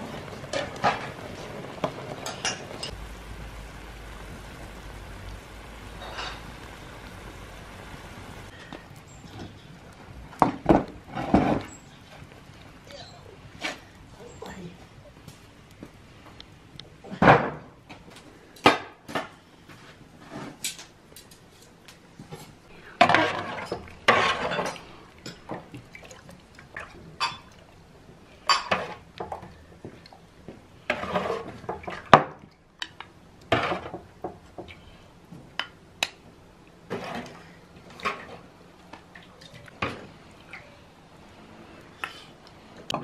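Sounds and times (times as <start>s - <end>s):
metal ladle scraping metal basin: 23.0s - 24.8s.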